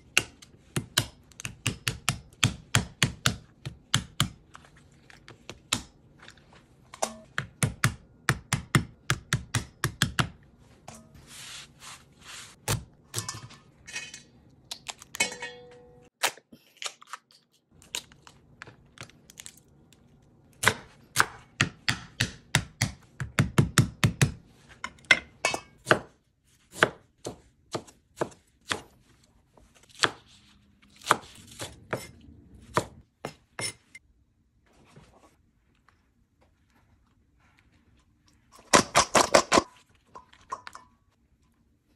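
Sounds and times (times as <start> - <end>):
knife chopping crab shell: 0.1 - 4.4, 7.3 - 10.4.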